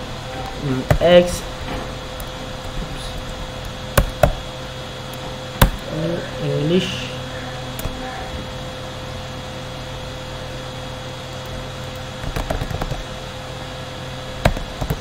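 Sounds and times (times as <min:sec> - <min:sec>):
electrical hum: 0:00.0 - 0:15.0
computer mouse clicks: 0:11.3 - 0:13.0
keyboard taps: 0:14.4 - 0:15.0.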